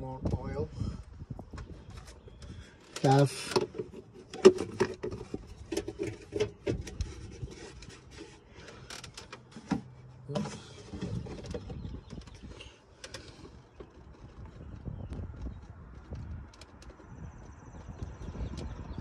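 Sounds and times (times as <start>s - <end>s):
plastic jug clicks and knocks: 3.4s - 7.2s.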